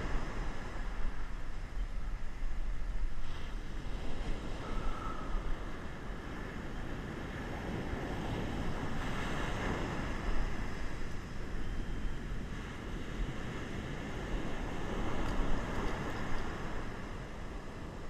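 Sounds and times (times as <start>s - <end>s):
wind buffeting microphone: 0.0s - 18.0s
heavy surf washing: 3.1s - 18.0s.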